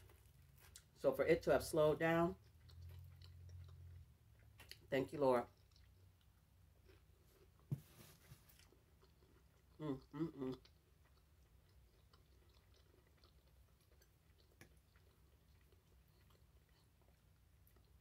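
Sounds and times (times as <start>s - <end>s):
soft chewing: 0.0s - 1.0s, 2.3s - 18.0s
person humming: 9.8s - 10.6s.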